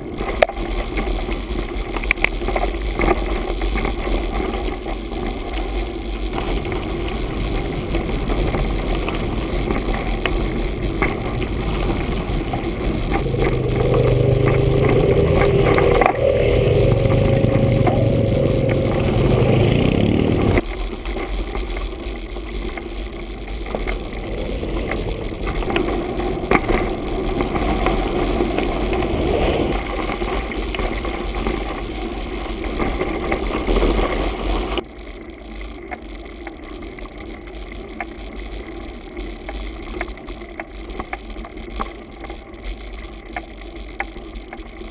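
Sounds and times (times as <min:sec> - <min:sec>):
quad bike engines running: 0:00.0 - 0:34.9
bike rolling over gravel: 0:00.0 - 0:44.9
bike rattles and knocks: 0:01.7 - 0:16.3.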